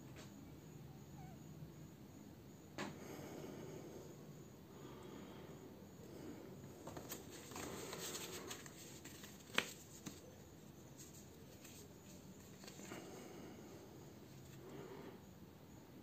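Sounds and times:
paper leaflets rustling: 6.8s - 10.4s, 11.0s - 13.0s.

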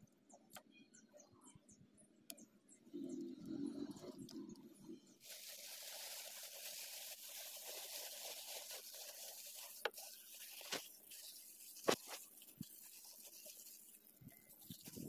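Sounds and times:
plastic bag rustling and crinkling: 5.2s - 15.0s.

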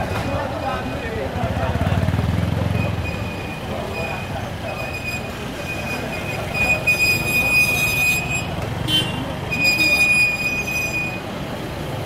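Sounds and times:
motorcycle engines running: 0.0s - 6.5s.

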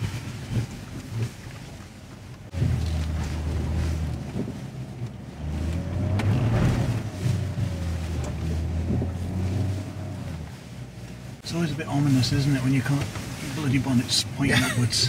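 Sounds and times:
engine pulling under load: 2.2s - 11.4s.

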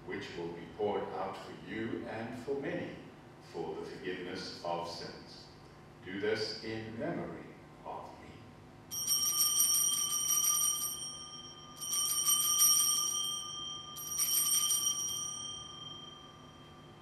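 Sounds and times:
altar bells jingling: 8.9s - 17.0s.

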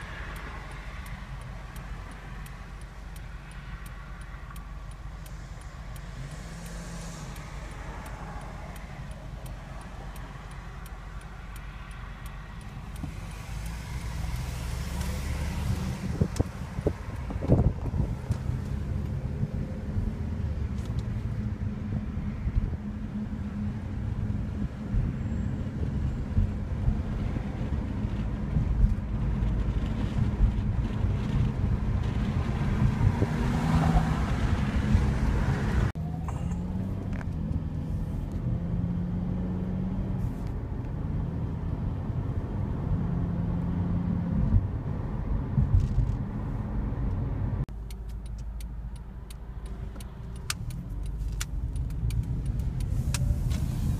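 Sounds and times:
car cabin rumble: 15.0s - 23.9s.

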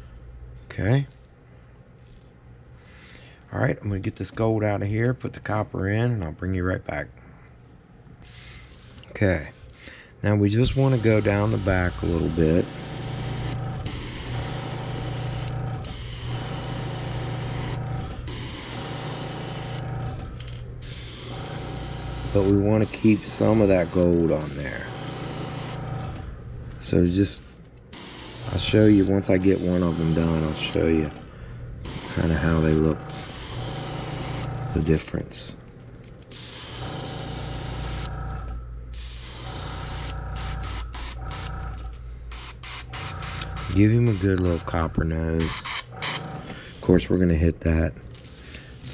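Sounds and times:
steady low hum: 0.0s - 48.9s
airbrush hissing: 10.7s - 13.0s, 20.8s - 25.8s, 28.0s - 30.8s.

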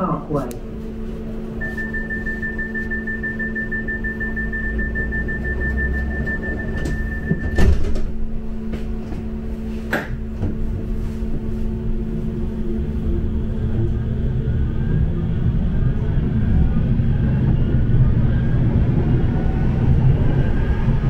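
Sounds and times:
tram electric hum and rumble: 0.0s - 21.0s
thin high tone: 1.6s - 7.6s
loud clunk: 6.8s - 8.2s.

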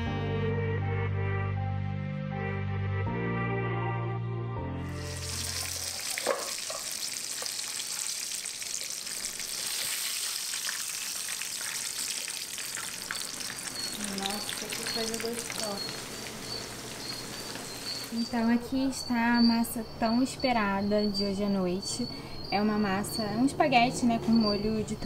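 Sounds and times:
steaks sizzling in hot oil: 4.9s - 18.3s.

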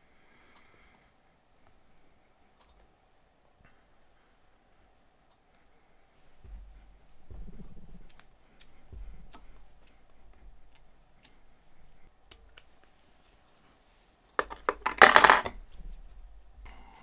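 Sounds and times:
metal parts clinking on workbench: 14.4s - 15.6s.

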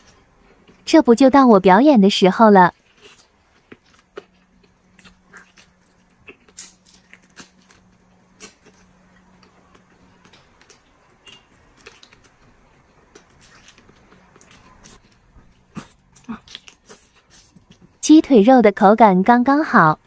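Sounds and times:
person chewing with wet smacks: 2.7s - 18.0s.

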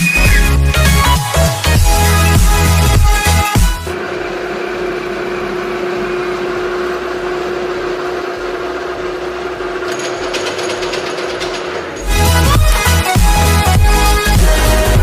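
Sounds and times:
electric hoist motor humming: 3.8s - 15.0s.

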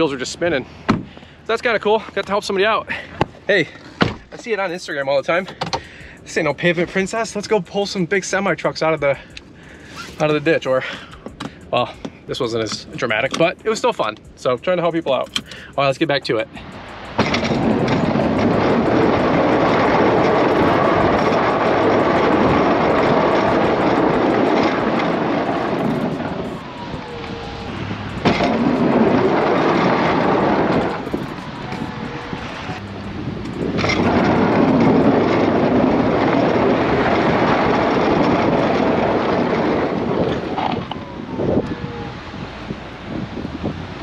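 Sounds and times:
faint whine: 11.4s - 42.3s
plow pushing slushy snow: 17.2s - 26.8s, 27.4s - 31.0s, 32.4s - 40.8s.

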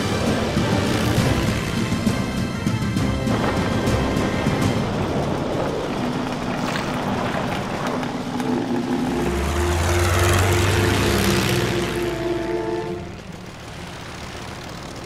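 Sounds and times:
rushing wind-like noise: 0.0s - 10.8s
propeller aircraft engine droning: 0.0s - 15.0s.

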